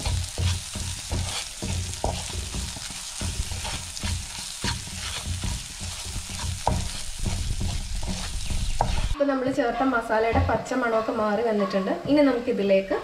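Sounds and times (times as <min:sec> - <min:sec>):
onions sizzling in oil: 0:00.0 - 0:09.2
spatula scraping pan: 0:00.0 - 0:09.2
spatula tapping pan: 0:00.0 - 0:09.2.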